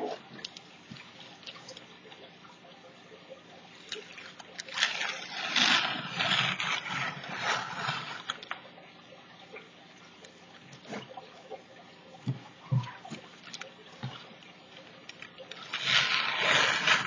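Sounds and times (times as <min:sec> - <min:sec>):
plastic sheet crinkling: 0:03.9 - 0:08.6, 0:12.7 - 0:17.0.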